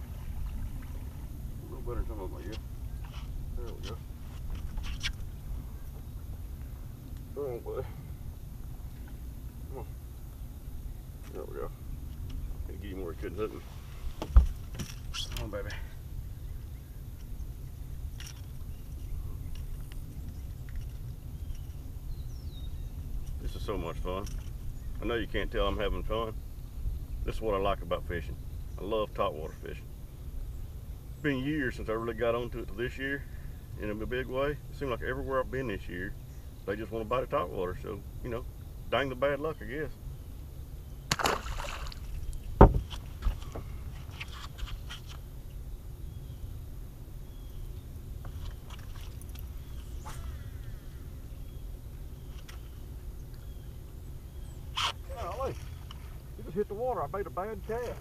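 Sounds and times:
steady low rumble: 0:00.0 - 0:44.2
low thump on boat deck: 0:14.2 - 0:15.0, 0:42.5 - 0:43.7
fish splashing into water: 0:41.1 - 0:42.4.

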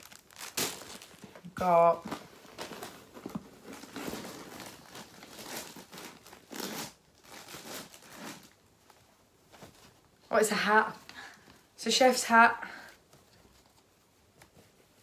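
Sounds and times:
plastic packaging crinkling: 0:00.0 - 0:08.8.

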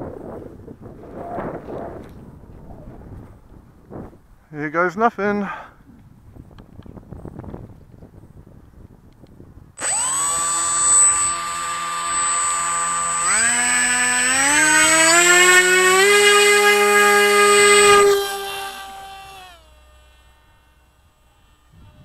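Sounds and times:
electric motor whining: 0:09.8 - 0:22.0.

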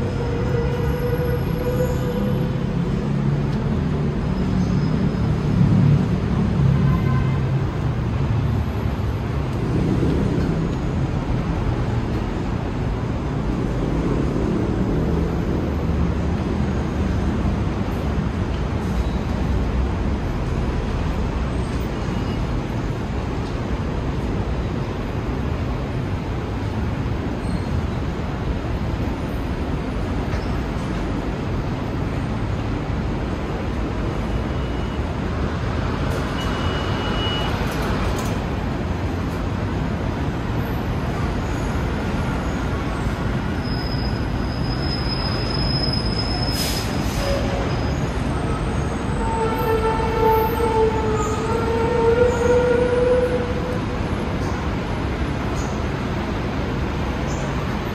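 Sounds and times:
cable car low rumble: 0:47.2 - 0:57.9.

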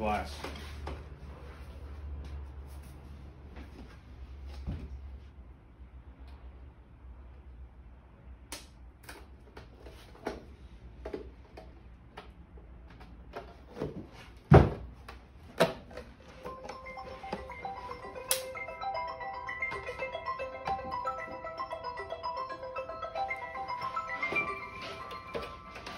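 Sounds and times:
music with mallet-like notes: 0:16.4 - 0:25.9.

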